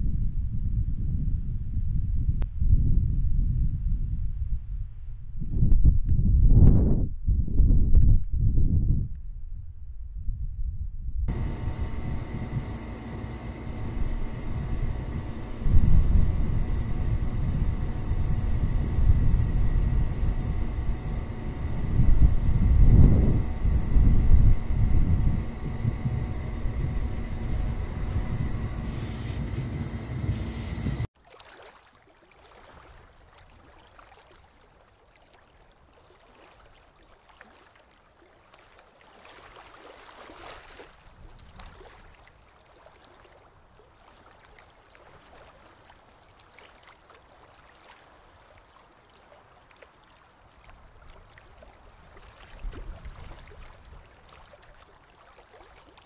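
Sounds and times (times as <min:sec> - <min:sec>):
loud low rumble with hum: 0:11.2 - 0:31.1
faint underwater water noise: 0:11.3 - 0:56.0.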